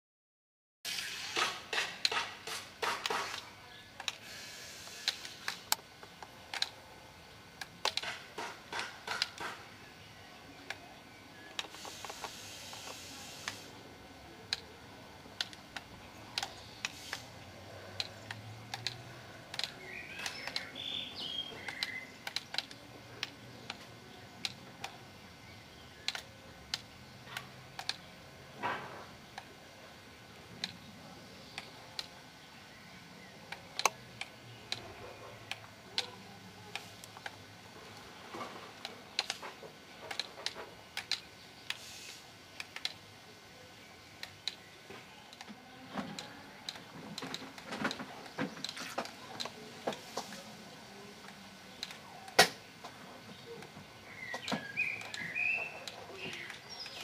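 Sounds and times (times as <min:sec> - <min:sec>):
sharp clicks and taps: 0:01.3 - 0:04.2, 0:04.8 - 0:06.8, 0:07.6 - 0:09.7, 0:15.3 - 0:17.3, 0:17.9 - 0:20.8, 0:21.5 - 0:25.0, 0:26.0 - 0:29.5, 0:33.4 - 0:37.4, 0:38.0 - 0:41.8.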